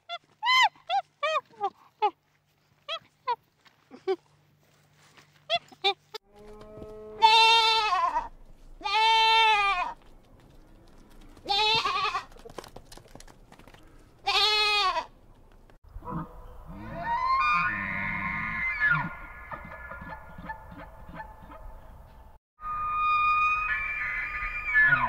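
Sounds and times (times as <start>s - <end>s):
farm animal bleating: 5.4s - 10.0s, 10.9s - 12.5s, 14.2s - 15.1s.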